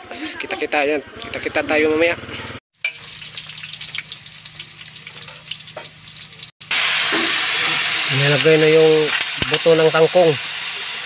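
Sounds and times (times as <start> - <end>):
vegetables sizzling in hot oil: 2.8 - 11.0.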